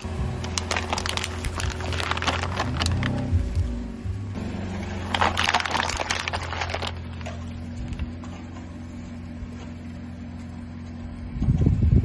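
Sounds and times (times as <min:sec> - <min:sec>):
plastic cups crackling under tyre: 0:00.0 - 0:03.8, 0:04.8 - 0:08.5
car engine idling: 0:00.0 - 0:12.0
loud low rumble: 0:00.0 - 0:12.0.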